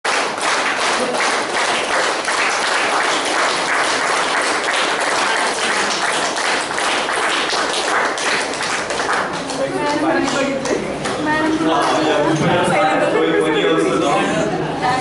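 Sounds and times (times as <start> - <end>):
applause: 0.0 - 11.2.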